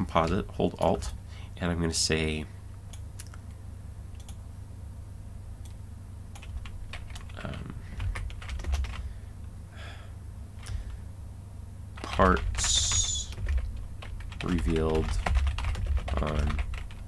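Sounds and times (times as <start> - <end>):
steady low hum: 0.0 - 17.0
computer keyboard keystrokes: 4.2 - 4.4, 5.6 - 9.0, 12.0 - 17.0.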